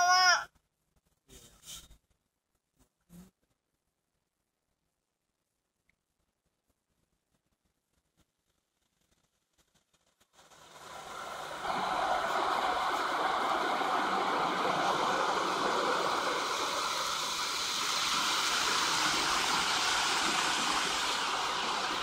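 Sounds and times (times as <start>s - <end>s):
car wash spraying water: 10.4s - 22.0s.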